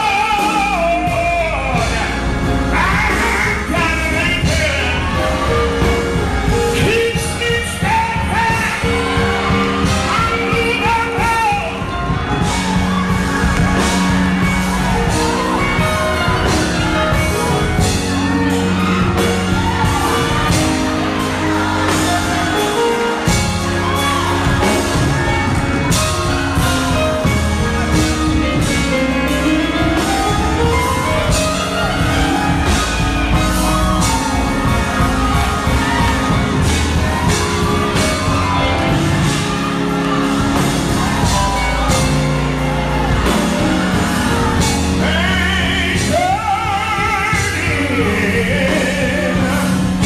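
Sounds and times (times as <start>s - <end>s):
band playing: 0.0s - 50.0s
congregation shouts and whoops: 0.0s - 50.0s
steady drum beat: 0.0s - 50.0s
sustained bass: 0.0s - 50.0s.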